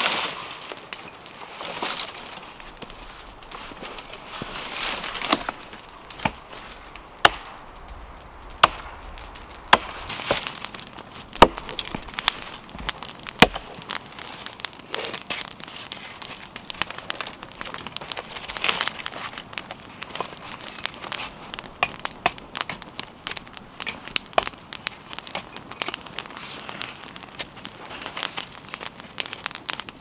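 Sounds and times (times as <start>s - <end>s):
wood knocks and cracks: 1.7s - 7.5s, 8.6s - 13.9s
hatchet chopping wood: 7.2s - 7.5s, 8.6s - 8.9s, 11.4s - 12.1s, 12.8s - 13.6s, 21.8s - 22.8s.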